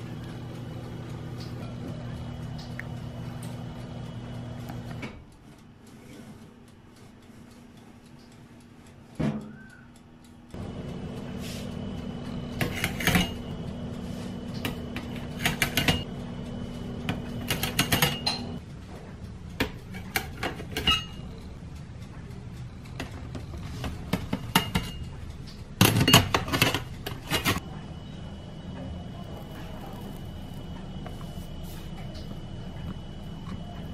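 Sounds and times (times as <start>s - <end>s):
low hum: 10.5s - 19.4s, 27.6s - 33.9s
metal bakeware clinking: 12.6s - 13.5s, 17.5s - 18.6s, 19.8s - 21.2s.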